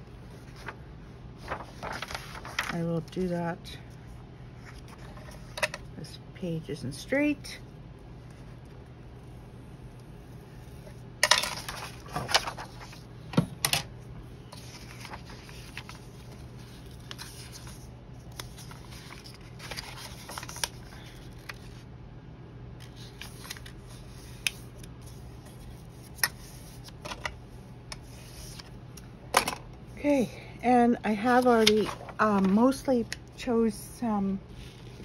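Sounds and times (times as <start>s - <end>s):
paper rustling: 0.2s - 0.8s, 1.4s - 2.9s, 10.7s - 13.1s, 14.5s - 21.8s, 22.8s - 28.8s, 31.2s - 32.8s, 34.5s - 35.0s.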